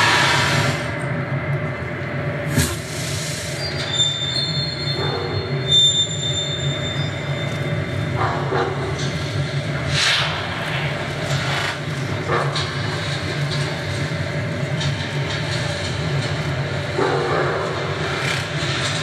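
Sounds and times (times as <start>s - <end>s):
high squealing tones: 3.6s - 7.8s.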